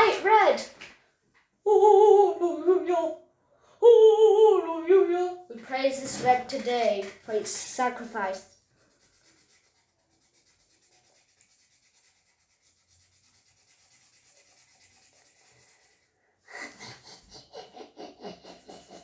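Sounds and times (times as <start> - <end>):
boy vocalizing: 1.7 - 3.2, 3.8 - 5.4
marker scratching on paper: 7.3 - 16.1, 18.3 - 19.0.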